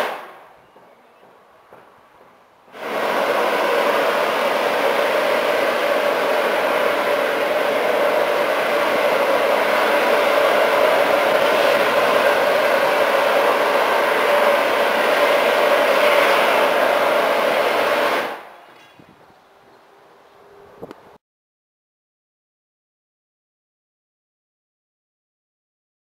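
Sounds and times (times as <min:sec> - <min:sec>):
steam locomotive hissing steam: 0:00.0 - 0:19.1.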